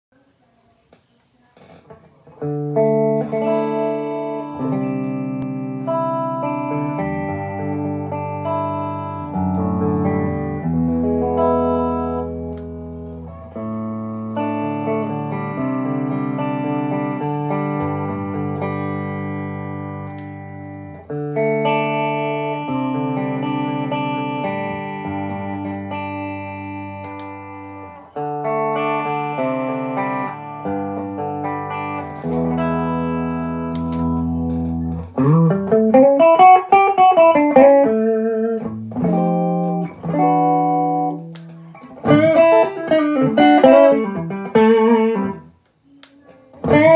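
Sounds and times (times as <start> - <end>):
electric guitar strummed chords: 1.9 - 45.6, 46.4 - 46.9
guitar note flurry sweeping pitch: 29.7 - 45.6, 46.6 - 46.9.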